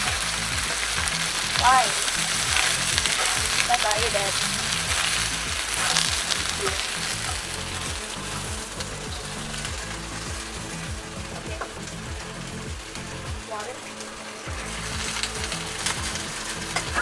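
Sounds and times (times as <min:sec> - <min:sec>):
wooden spatula stirring: 0:00.0 - 0:12.0
crayfish sizzling in hot oil: 0:00.0 - 0:17.0.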